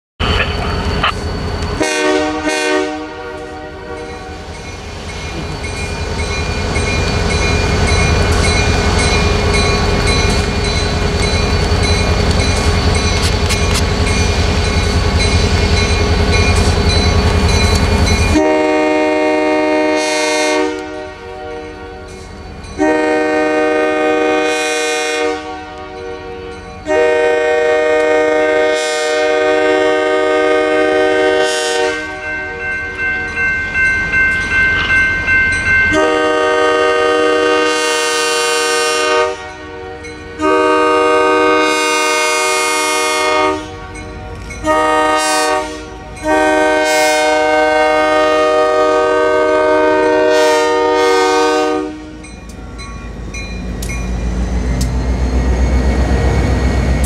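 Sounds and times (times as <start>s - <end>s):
locomotive air horn blasts: 1.8s - 4.4s, 18.3s - 22.1s, 22.8s - 32.3s, 35.9s - 44.0s, 44.6s - 52.2s.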